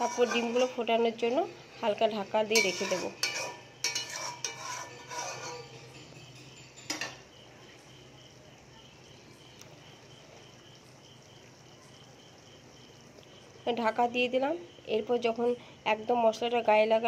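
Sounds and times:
metal spatula scraping a wok: 0.0s - 7.3s
cricket chirping: 0.0s - 17.0s.

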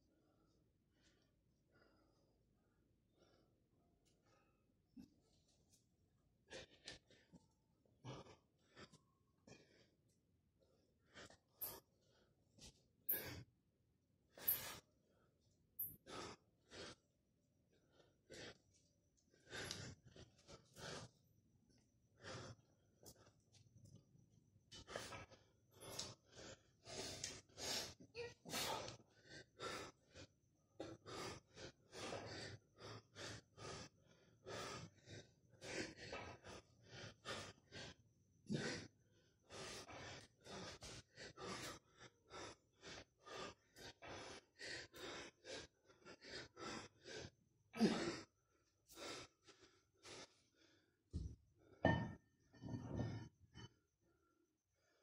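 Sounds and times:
man breathing hard: 6.4s - 13.5s, 14.3s - 21.3s, 22.2s - 23.4s, 24.7s - 51.0s.

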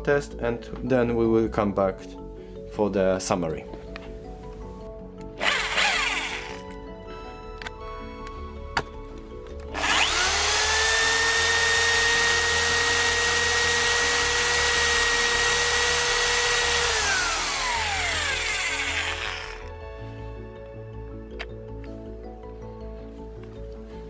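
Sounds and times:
hammer drill drilling into stone: 5.4s - 6.7s, 9.7s - 19.7s.

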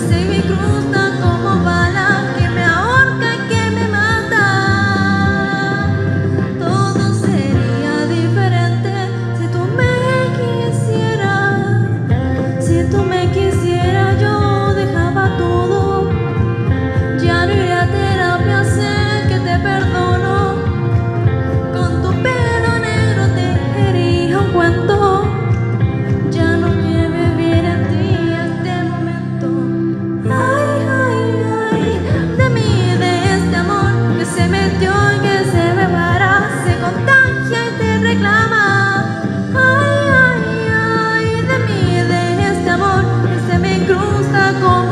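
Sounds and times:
karaoke backing track: 0.0s - 44.9s
woman singing into microphone: 0.0s - 44.9s.

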